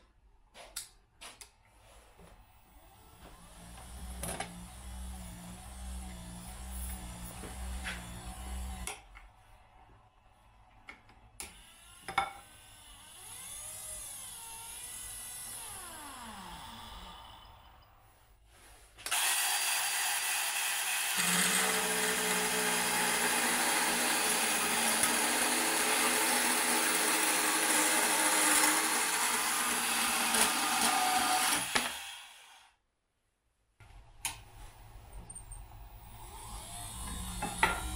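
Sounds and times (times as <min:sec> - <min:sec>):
band saw cutting steel: 0:19.1 - 0:32.7, 0:36.0 - 0:37.9.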